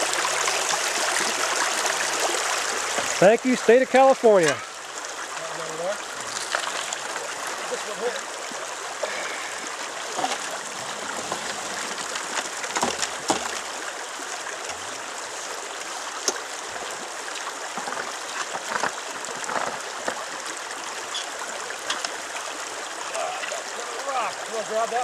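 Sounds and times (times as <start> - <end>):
river running over stones: 0.0 - 25.0
knocks and splashes: 0.8 - 3.4, 6.2 - 7.9, 9.1 - 13.8, 17.7 - 20.4.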